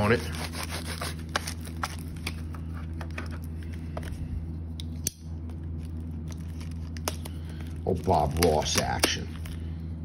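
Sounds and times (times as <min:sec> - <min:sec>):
steady low hum: 0:00.0 - 0:10.0
plastic shrink wrap crinkling: 0:05.6 - 0:09.6.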